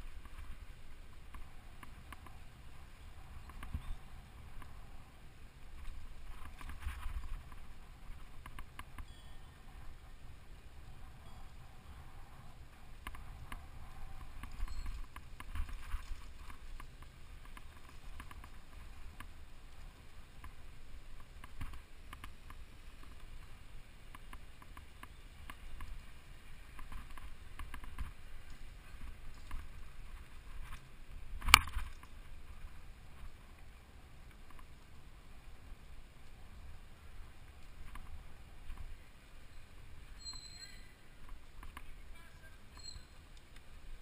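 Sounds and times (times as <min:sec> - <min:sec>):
bike tyre noise on dirt: 0:00.0 - 0:44.0
wind rumble on microphone: 0:00.0 - 0:44.0
bike rattles and knocks: 0:13.0 - 0:19.4, 0:26.6 - 0:32.5.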